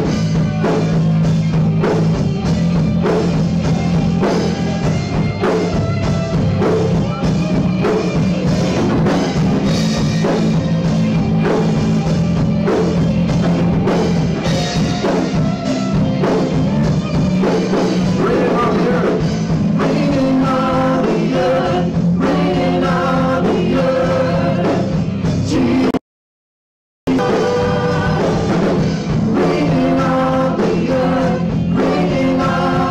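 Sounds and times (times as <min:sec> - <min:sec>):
worship band playing: 0:00.0 - 0:26.0, 0:27.1 - 0:32.9
women singing into microphones: 0:27.1 - 0:28.5, 0:29.4 - 0:32.9.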